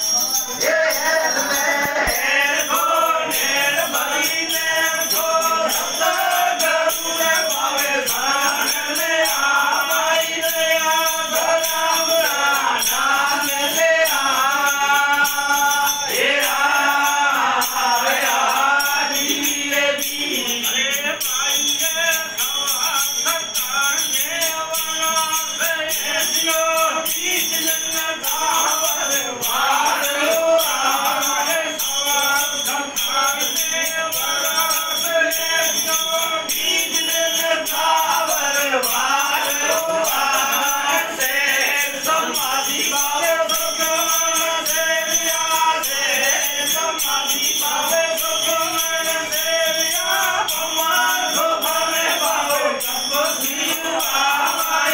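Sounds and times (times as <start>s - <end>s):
person singing: 0.0s - 6.4s
metallic jingling percussion: 0.0s - 54.9s.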